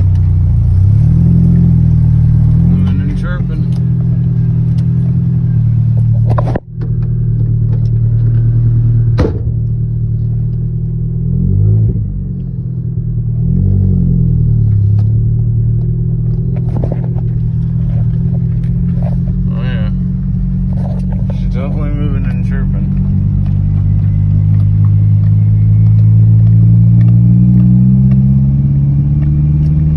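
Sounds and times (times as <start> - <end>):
pickup engine revving: 0.0 - 29.9
sharp knocks: 9.2 - 9.6.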